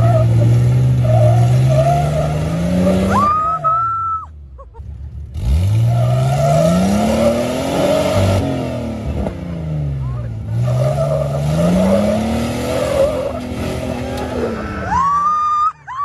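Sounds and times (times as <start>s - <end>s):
engine revving hard: 0.0s - 3.3s, 5.3s - 14.8s
tires squealing on rock: 0.0s - 4.3s, 5.4s - 8.6s, 10.0s - 16.0s.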